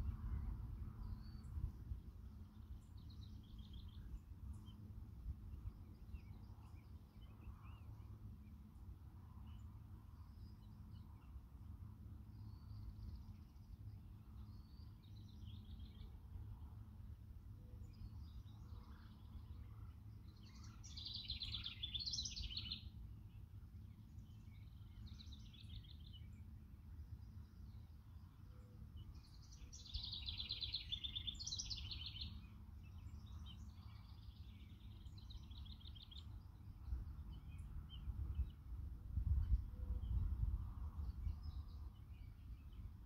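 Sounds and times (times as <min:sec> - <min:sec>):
songbird trilling: 0:20.4 - 0:22.9, 0:29.2 - 0:32.5.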